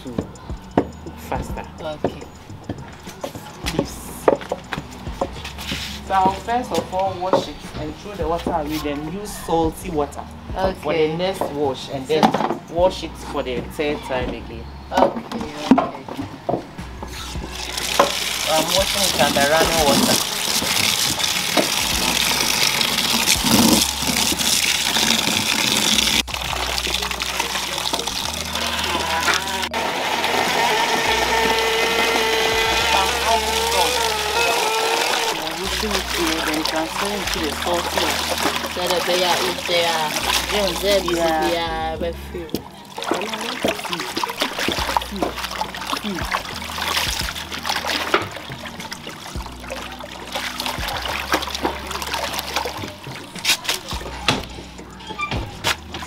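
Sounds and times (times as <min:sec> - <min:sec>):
tap water running into basin: 0:00.0 - 0:09.8, 0:15.0 - 0:56.0
hand swishing leaves in water: 0:43.0 - 0:54.0.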